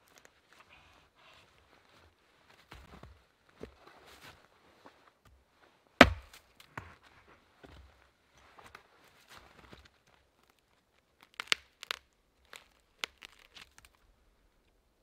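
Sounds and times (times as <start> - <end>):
dry wood cracking and splintering: 10.4 - 14.1.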